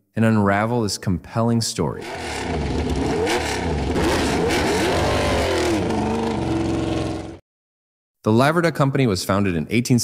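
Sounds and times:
motorcycle engine revving: 2.0s - 7.4s.

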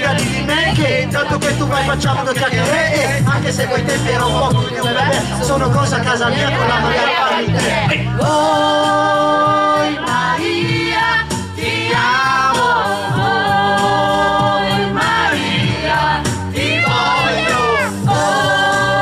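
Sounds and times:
backing track with bass line: 0.0s - 19.0s
voices singing in chorus: 0.0s - 19.0s.

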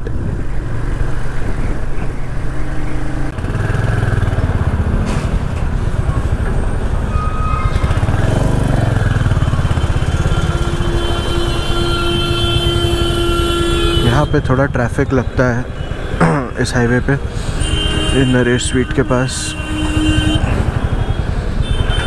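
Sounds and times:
motorcycle engine running: 7.7s - 14.0s
vehicle horn long tone: 9.3s - 14.6s, 17.5s - 22.0s.

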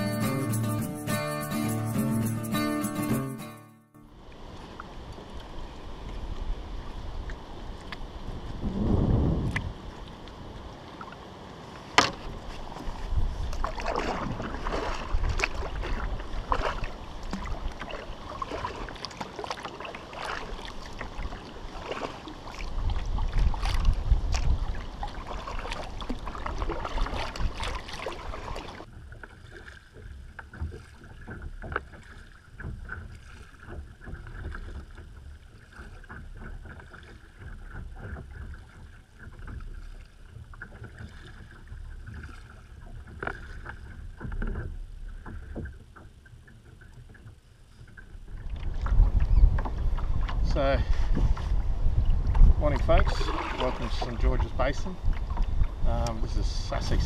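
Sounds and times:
kayak paddle splashing in water: 4.1s - 57.0s
wind on microphone: 4.5s - 10.8s, 12.2s - 18.9s, 20.4s - 28.8s, 47.8s - 57.0s.

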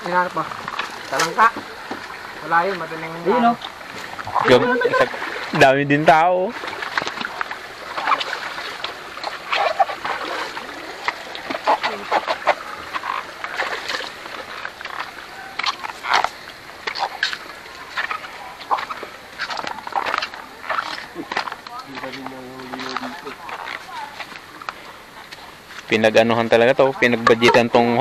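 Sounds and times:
overlapping voices of many people: 0.0s - 28.0s
people shouting and calling: 2.4s - 5.6s.

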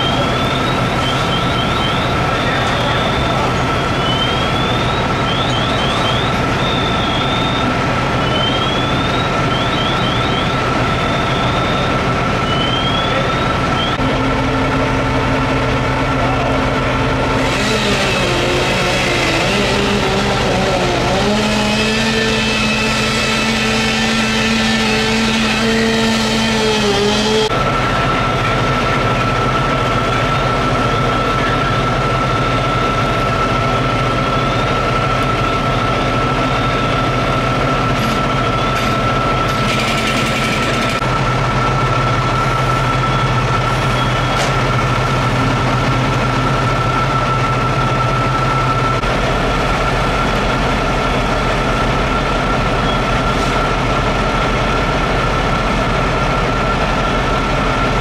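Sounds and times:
fire engines high whine: 0.0s - 58.0s
engine revving: 15.6s - 27.6s.

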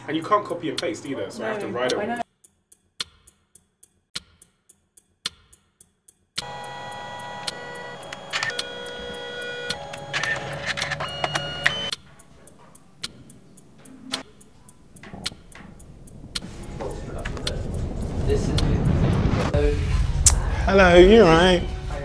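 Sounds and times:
printer motors whirring: 6.4s - 15.5s.

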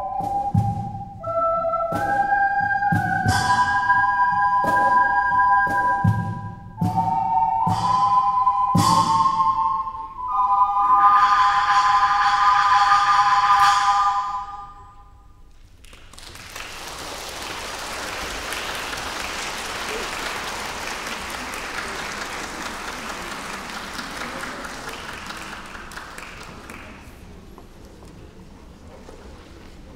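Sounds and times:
audience applauding: 15.8s - 28.0s.

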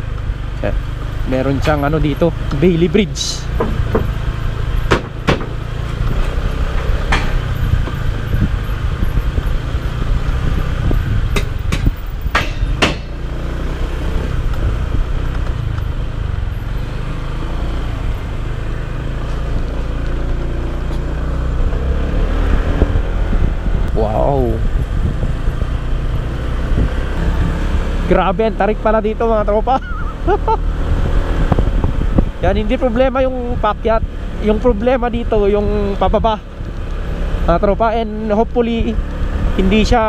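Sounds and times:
motorcycle engine and wind rumble: 0.0s - 40.0s
wheels knocking on plank deck: 3.5s - 4.2s, 4.8s - 5.6s.

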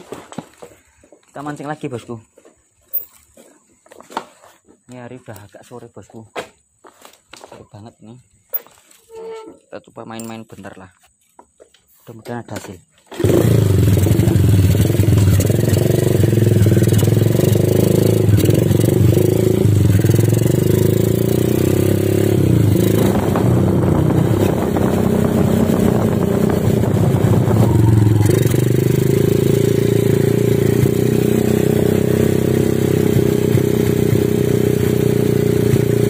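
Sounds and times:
motorcycle engine running: 13.1s - 36.0s.

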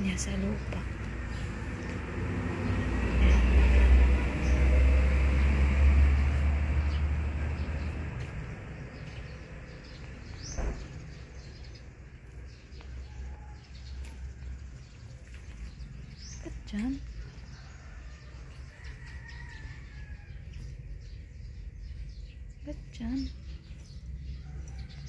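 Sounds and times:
birds chirping faintly: 6.8s - 25.0s.

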